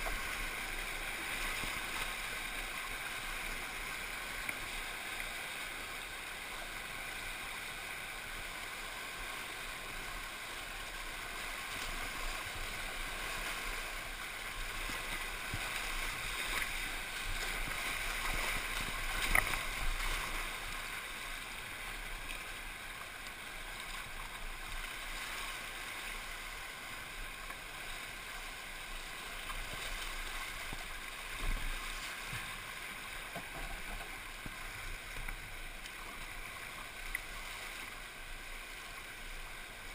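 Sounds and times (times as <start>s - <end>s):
rushing whitewater: 0.0s - 39.9s
water splashing against boat: 10.8s - 39.9s.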